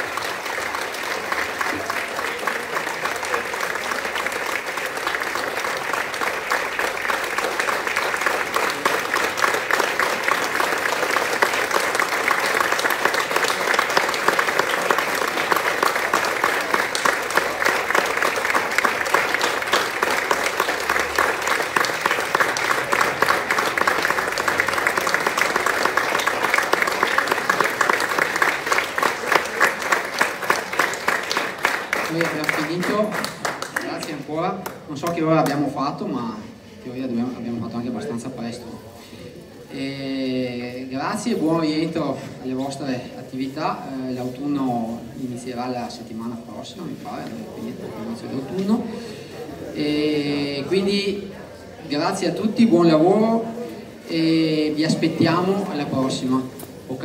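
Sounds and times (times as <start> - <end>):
audience applauding: 0.0 - 35.6.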